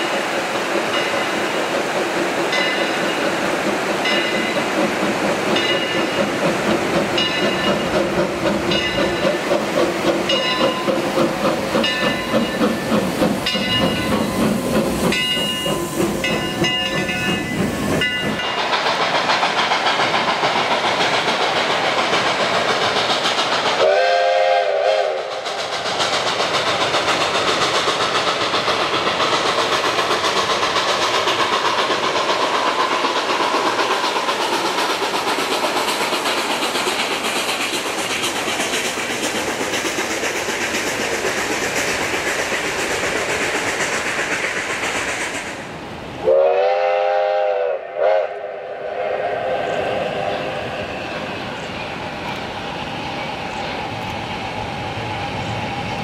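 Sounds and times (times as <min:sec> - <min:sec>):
wheels clicking over rail joints: 0:00.0 - 0:23.8
steam locomotive chuffing: 0:00.0 - 0:56.0
steam whistle blast: 0:23.8 - 0:25.4, 0:46.2 - 0:50.9.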